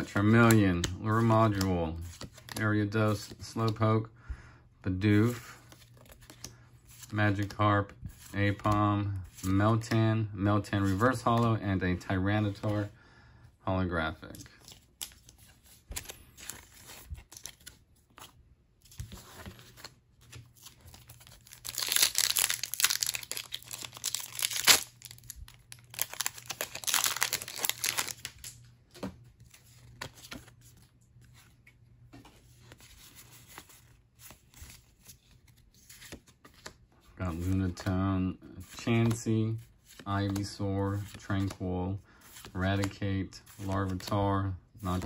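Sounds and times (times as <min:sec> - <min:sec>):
wrapper and cards rustling: 0:00.0 - 0:03.8, 0:05.0 - 0:10.0, 0:14.2 - 0:45.0
foil wrapper tearing: 0:21.4 - 0:28.3.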